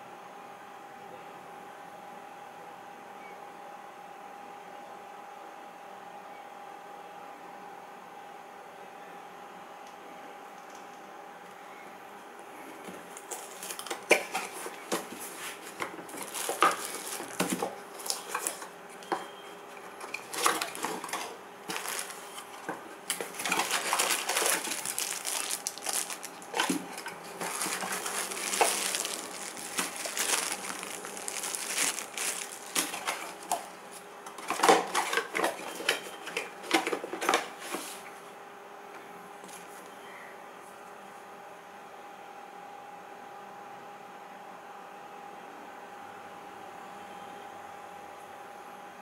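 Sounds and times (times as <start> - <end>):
plastic wrapping rustling: 13.0 - 36.1.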